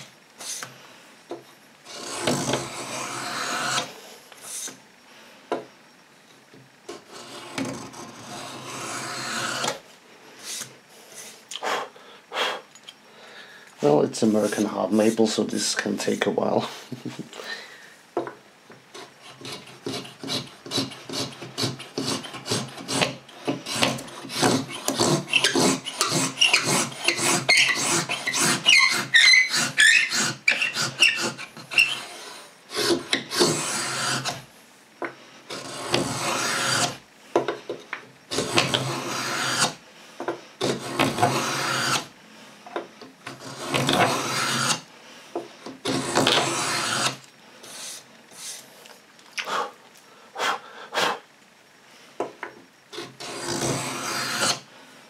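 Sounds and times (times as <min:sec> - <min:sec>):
steel cutter scraping wood: 0:01.8 - 0:04.8, 0:06.9 - 0:09.8, 0:10.4 - 0:11.4, 0:13.8 - 0:16.3, 0:18.9 - 0:34.5, 0:35.4 - 0:37.0, 0:38.3 - 0:39.8, 0:40.6 - 0:42.1, 0:43.2 - 0:44.9, 0:45.5 - 0:48.7, 0:52.9 - 0:54.7.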